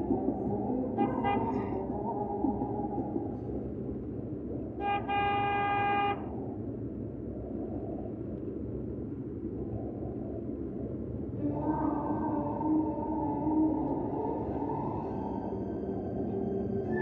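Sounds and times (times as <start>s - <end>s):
car road and engine noise: 0.0s - 17.0s
car horn honking: 1.0s - 1.8s, 4.8s - 6.3s.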